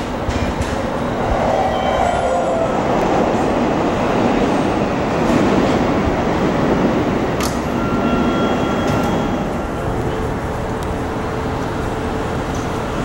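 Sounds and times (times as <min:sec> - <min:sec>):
electric train mechanical noise: 0:00.0 - 0:13.0.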